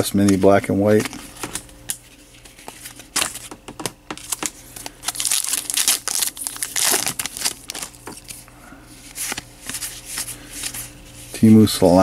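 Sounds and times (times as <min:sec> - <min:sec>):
wrapper tearing and crinkling: 0:04.2 - 0:08.4.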